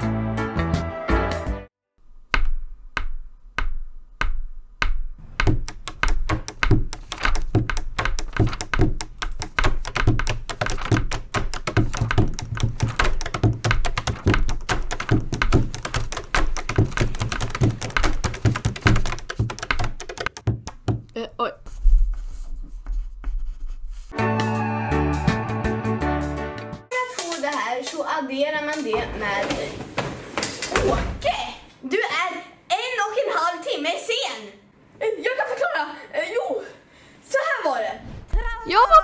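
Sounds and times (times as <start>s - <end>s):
pencils drumming on table: 2.3s - 21.2s.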